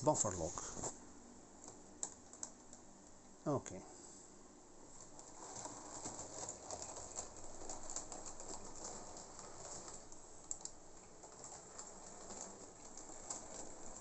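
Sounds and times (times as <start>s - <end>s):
model train wheels clicking on rails: 5.0s - 14.0s.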